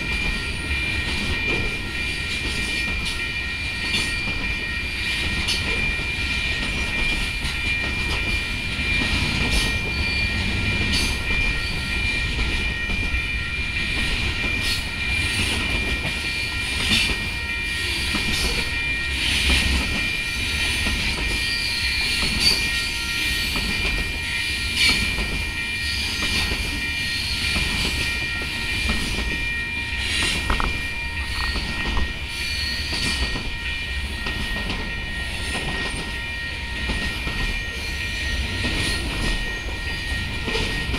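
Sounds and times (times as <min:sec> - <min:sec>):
train wheels rumbling on rail: 0:00.0 - 0:40.9
high-pitched tone: 0:28.1 - 0:34.0.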